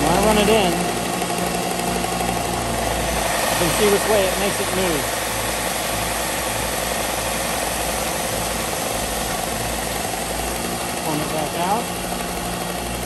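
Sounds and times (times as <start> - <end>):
belt sander humming: 0.0 - 13.0.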